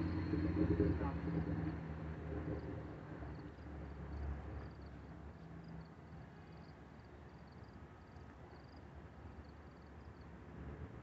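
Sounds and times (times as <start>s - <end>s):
low engine hum: 0.0s - 4.9s.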